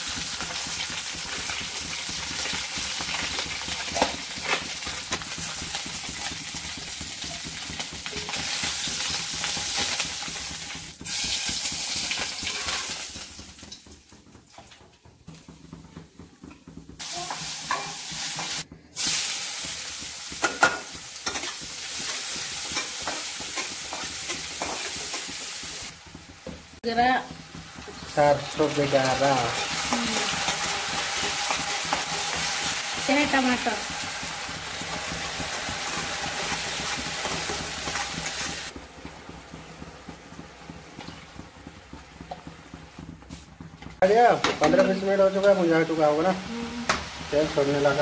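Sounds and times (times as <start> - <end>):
fish sizzling in hot oil: 0.0 - 14.8, 16.8 - 48.0
onions sizzling in pan: 0.0 - 48.0
metal spatula scraping pan: 7.2 - 13.1, 20.0 - 25.4.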